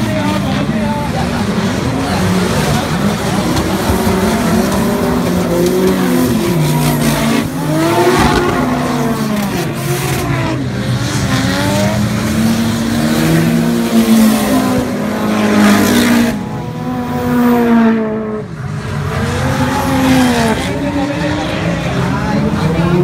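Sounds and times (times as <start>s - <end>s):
car engines revving: 0.0s - 23.0s.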